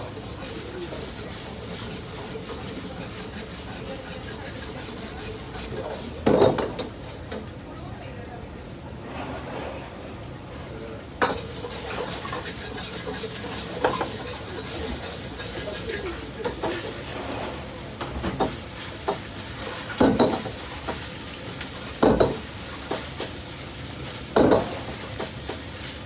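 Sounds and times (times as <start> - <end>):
rice sizzling in a wok: 0.0 - 8.7, 11.1 - 26.0
metal ladle scraping a wok: 11.3 - 18.0.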